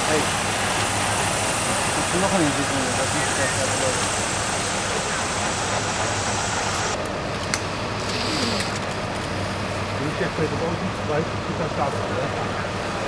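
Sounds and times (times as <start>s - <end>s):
faint voices: 0.0s - 7.0s, 10.0s - 13.0s
high hiss: 0.0s - 7.0s
engine idling: 0.0s - 13.0s.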